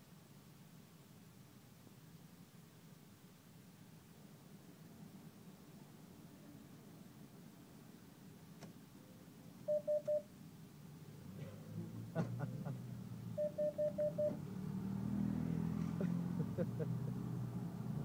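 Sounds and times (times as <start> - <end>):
cash machine beeping: 9.7 - 10.3, 13.4 - 14.4.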